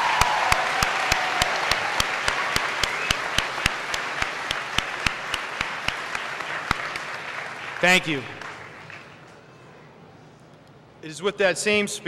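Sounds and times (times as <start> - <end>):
person clapping close by: 0.0 - 9.1
large crowd applauding: 0.0 - 9.3.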